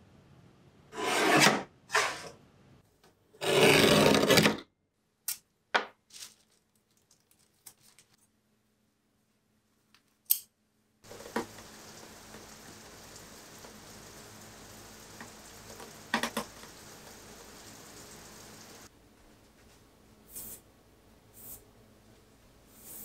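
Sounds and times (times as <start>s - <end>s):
paper being folded: 6.1s - 8.3s
faint steady hiss: 6.1s - 23.0s.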